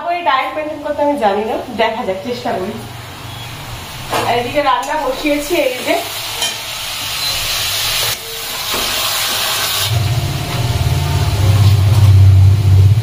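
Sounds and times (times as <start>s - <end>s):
food sizzling in a pan: 3.7s - 12.4s
low pulsing hum: 9.9s - 13.0s.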